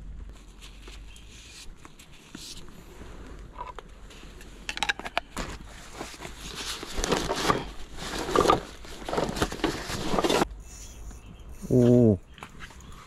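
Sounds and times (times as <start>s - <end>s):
fabric bag rustling: 5.4s - 10.5s.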